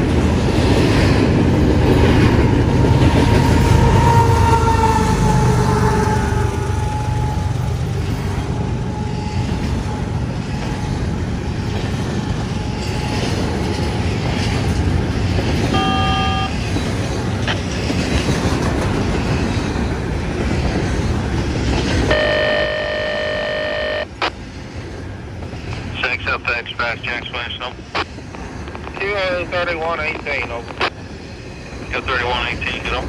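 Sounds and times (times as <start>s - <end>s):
steel wheels rumbling on rail: 0.0s - 33.0s
train horn: 3.6s - 7.4s, 15.7s - 16.6s, 22.1s - 24.1s.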